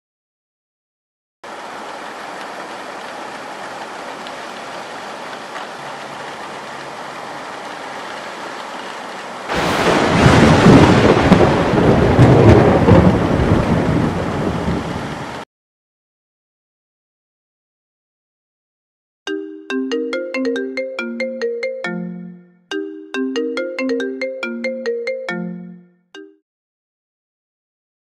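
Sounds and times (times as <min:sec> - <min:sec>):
steady rain: 0:01.4 - 0:15.4
rolling thunder clap: 0:09.5 - 0:14.9.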